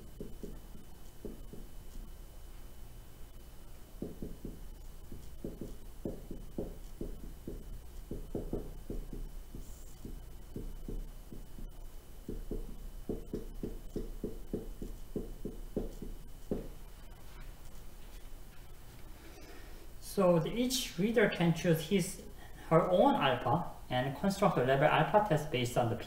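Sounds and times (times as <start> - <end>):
marker writing on whiteboard: 0.0 - 2.1, 3.7 - 18.2.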